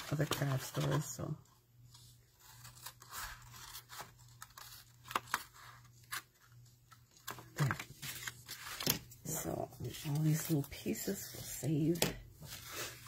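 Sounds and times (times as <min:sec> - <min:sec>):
paper rustling: 0:01.9 - 0:09.2.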